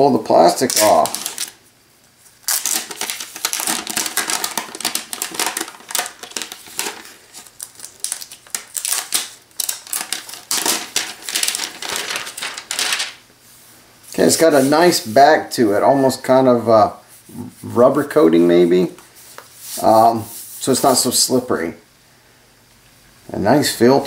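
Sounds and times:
plastic wrap crinkling: 0:00.3 - 0:13.2.

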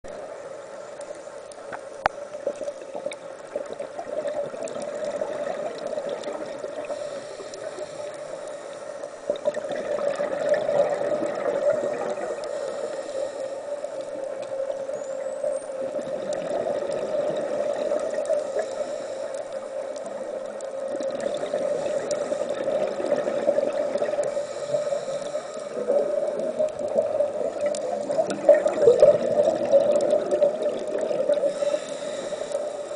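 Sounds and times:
underwater breathing bubbles: 0:02.0 - 0:14.9, 0:15.6 - 0:32.9.

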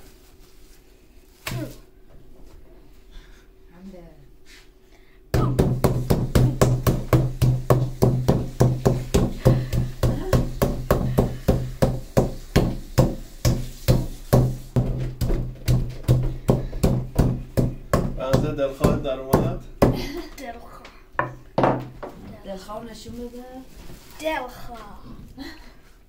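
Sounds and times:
steady low hum: 0:00.0 - 0:23.8
meat mallet pounding: 0:05.4 - 0:20.1.

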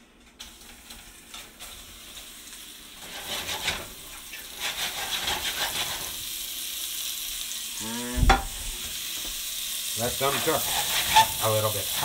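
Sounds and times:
meatballs sizzling in hot oil: 0:00.4 - 0:12.0.

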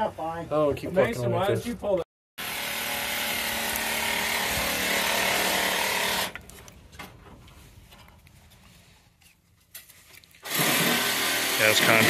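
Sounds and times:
power tool running: 0:02.4 - 0:06.4, 0:10.4 - 0:12.0.

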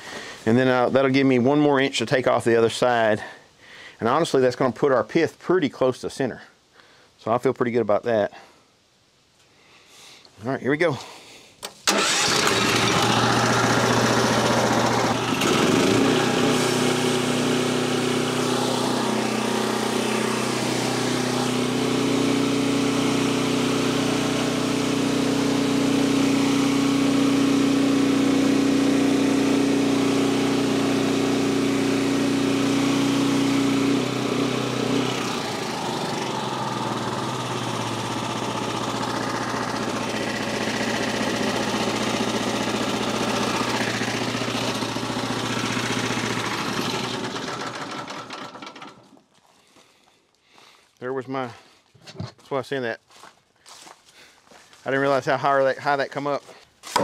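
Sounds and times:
gas engine running: 0:11.8 - 0:49.0
band saw blade cutting log: 0:12.3 - 0:49.0.

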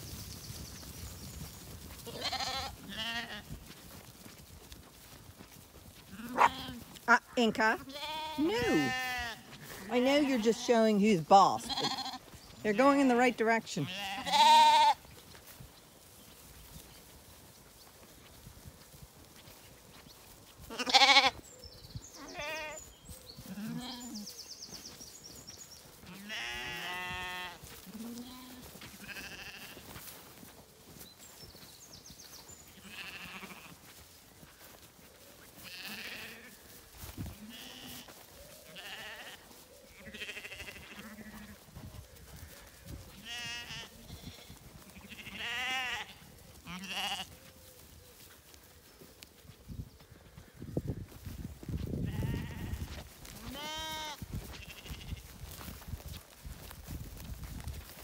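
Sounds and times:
lambs and sheep bleating: 0:01.9 - 0:03.8, 0:05.4 - 0:15.1, 0:20.6 - 0:21.5, 0:22.2 - 0:24.3, 0:26.0 - 0:30.1, 0:32.7 - 0:33.9, 0:35.5 - 0:47.5, 0:50.0 - 0:55.7.

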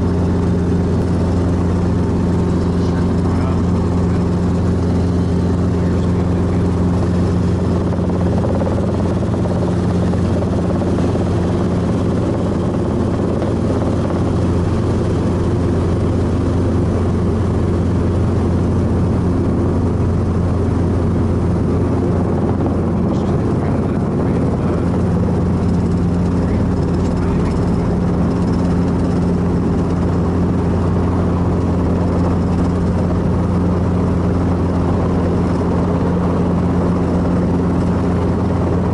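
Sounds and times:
helicopter engine and rotors droning: 0:00.0 - 0:38.9.

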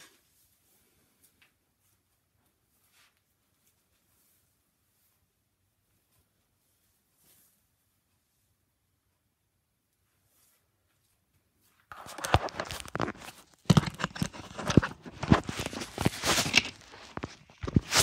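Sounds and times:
microphone handling noise: 0:11.9 - 0:18.0.

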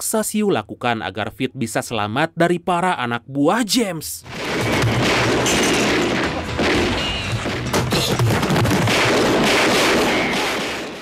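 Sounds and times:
dramatic music: 0:04.3 - 0:10.4
pistol shots: 0:08.4 - 0:11.0.

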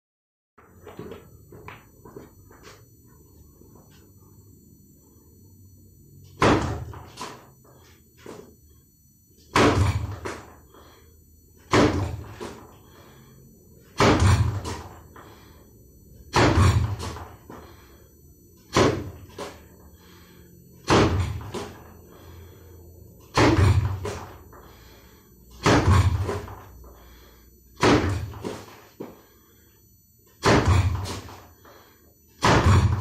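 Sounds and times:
fist punches on wooden post: 0:09.5 - 0:10.4, 0:11.7 - 0:12.2, 0:14.0 - 0:14.7, 0:25.6 - 0:26.4, 0:27.8 - 0:28.4, 0:30.4 - 0:31.2.

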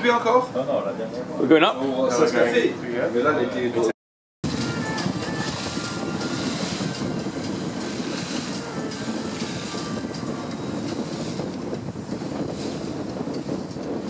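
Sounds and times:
boat engine rumbling: 0:04.4 - 0:14.0
water splashing along hull: 0:04.5 - 0:14.0.

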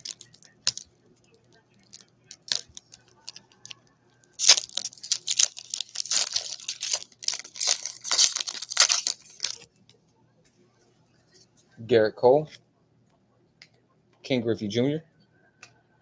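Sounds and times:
wrapper tearing and crinkling: 0:00.0 - 0:00.8, 0:01.9 - 0:03.8, 0:04.4 - 0:09.6.

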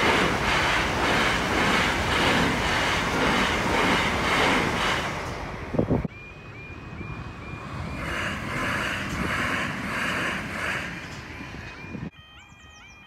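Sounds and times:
train wheels rushing on rails: 0:00.0 - 0:12.1
level crossing alarm tone: 0:06.1 - 0:08.7, 0:11.0 - 0:13.0.

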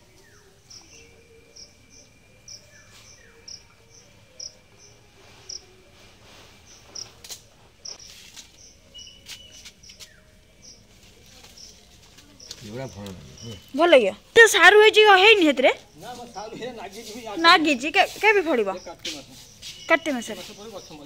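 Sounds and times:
insect chirping: 0:00.0 - 0:05.8, 0:06.6 - 0:07.2, 0:07.8 - 0:21.0
faint steady high tone: 0:00.0 - 0:07.2.

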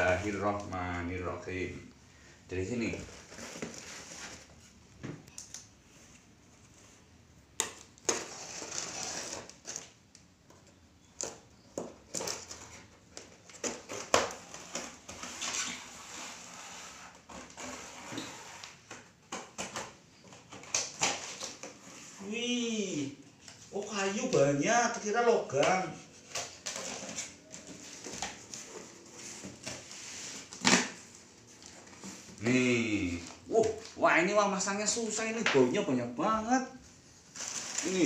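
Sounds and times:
cardboard scraping and rustling: 0:00.0 - 0:00.7, 0:02.8 - 0:04.8, 0:08.0 - 0:10.0, 0:12.0 - 0:22.3, 0:26.0 - 0:33.8, 0:37.1 - 0:38.0
utility knife slitting tape and cardboard: 0:08.0 - 0:09.9.

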